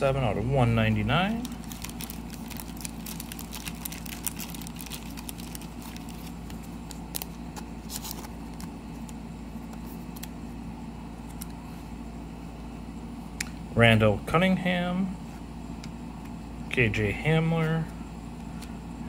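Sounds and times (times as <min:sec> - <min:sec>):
steady low hum: 0:00.0 - 0:19.0
cards clicking and rustling: 0:01.3 - 0:10.4.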